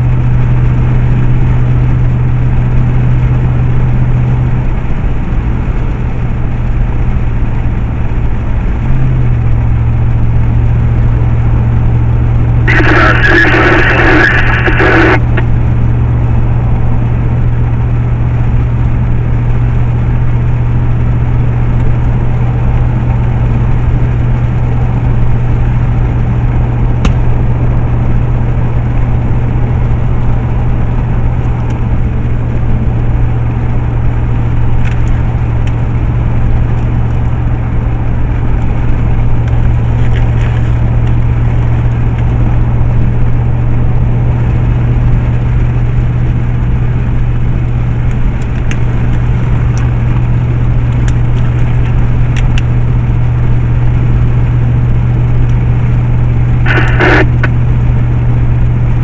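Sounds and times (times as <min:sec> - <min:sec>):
vehicle engine and road noise: 0:00.0 - 0:59.0
low drone: 0:09.8 - 0:18.3, 0:31.7 - 0:59.0.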